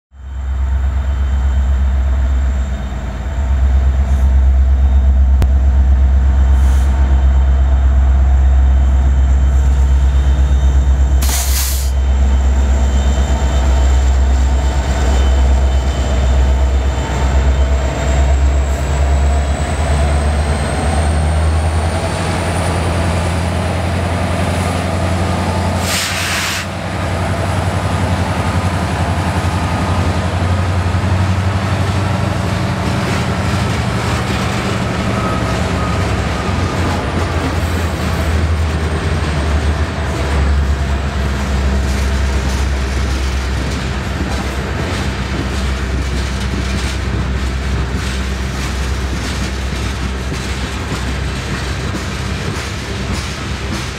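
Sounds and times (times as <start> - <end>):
diesel locomotive rumble: 0.1 - 53.9
air hissing: 11.2 - 12.0, 25.8 - 26.8.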